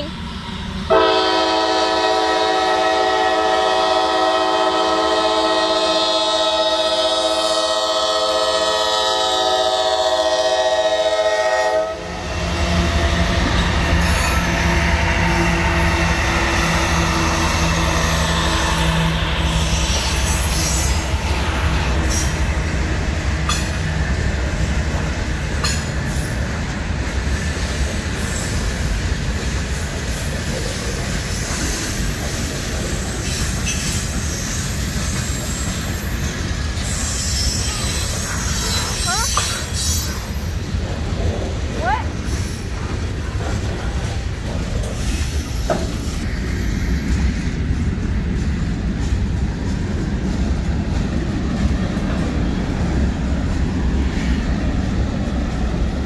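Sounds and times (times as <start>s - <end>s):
diesel locomotives rumbling: 0.0s - 56.0s
wheels rushing on rails: 0.0s - 56.0s
locomotive air horn: 0.9s - 12.2s
sharp clicks of rail cars: 12.1s - 56.0s.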